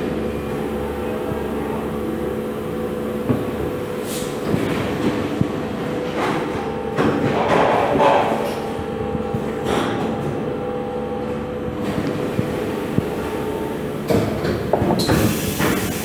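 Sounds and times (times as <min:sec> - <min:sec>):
machine humming: 0:00.0 - 0:16.0
hissing air bursts: 0:15.0 - 0:16.0.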